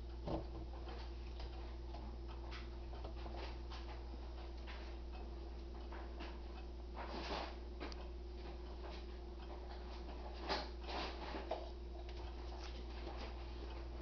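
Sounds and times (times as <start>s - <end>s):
pendulum clock ticking: 0.0s - 10.9s.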